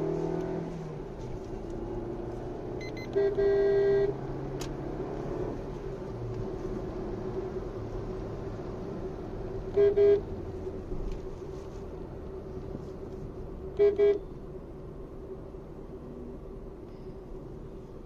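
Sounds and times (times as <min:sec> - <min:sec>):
car engine drone: 0:00.0 - 0:18.0
road noise: 0:00.0 - 0:18.0
car horn toots: 0:02.8 - 0:04.2, 0:09.7 - 0:10.3, 0:13.8 - 0:14.3.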